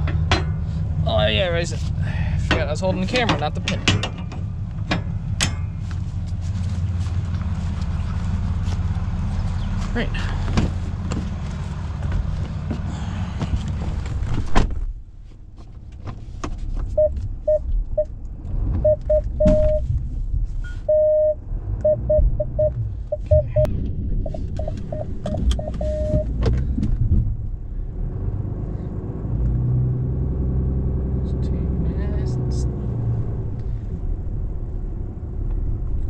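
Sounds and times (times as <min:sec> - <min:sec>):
truck engine rumbling: 0:00.0 - 0:36.0
parking sensor beeps: 0:17.0 - 0:18.1, 0:18.8 - 0:19.8, 0:20.8 - 0:26.3.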